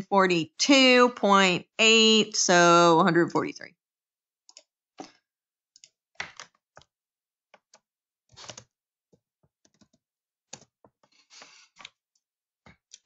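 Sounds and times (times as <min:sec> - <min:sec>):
keyboard and mouse clicks: 0:05.8 - 0:06.9, 0:08.4 - 0:08.7, 0:09.7 - 0:10.7, 0:12.7 - 0:13.0.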